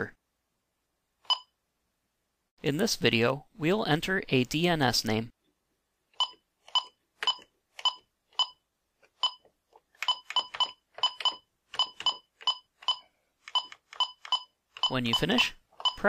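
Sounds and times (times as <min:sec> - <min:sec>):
keypad beeps: 0:06.2 - 0:08.6, 0:09.2 - 0:16.0.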